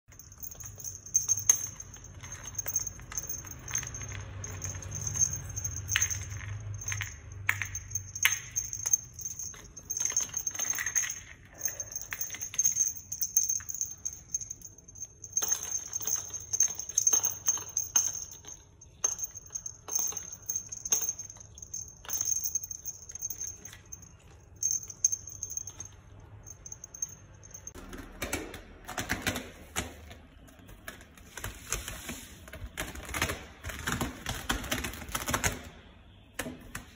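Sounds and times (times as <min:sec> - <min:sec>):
small bells jingling: 0:00.0 - 0:27.8.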